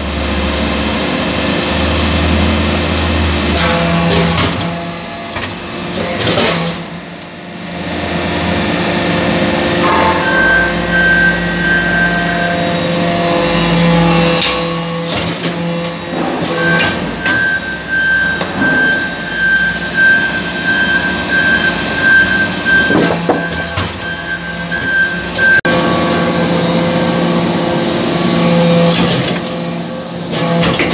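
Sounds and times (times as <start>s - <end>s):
press machine hum and whine: 0.0s - 19.0s.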